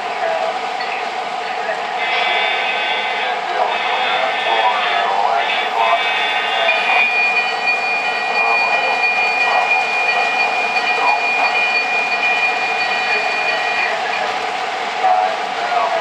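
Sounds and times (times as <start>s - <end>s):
high-pitched whine: 0.0s - 16.0s
model freight train rolling on track: 0.0s - 16.0s
model locomotive diesel engine idling: 0.0s - 16.0s.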